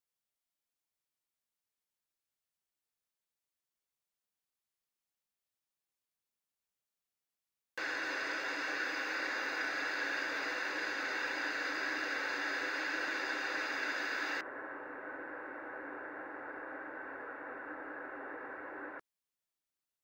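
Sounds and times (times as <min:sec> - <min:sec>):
television static hiss: 0:07.8 - 0:14.4.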